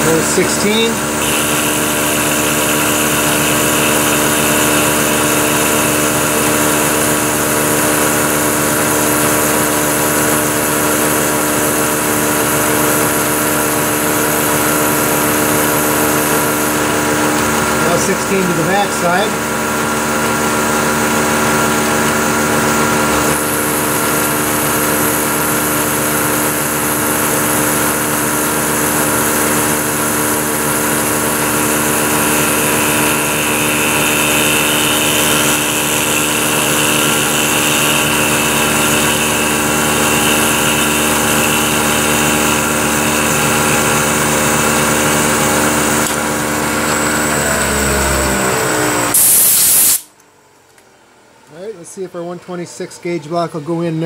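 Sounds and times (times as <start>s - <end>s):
milling machine cutting whine: 0.0s - 49.4s
spindle winding down: 0.0s - 49.4s
compressed air blow gun hiss: 49.2s - 50.1s.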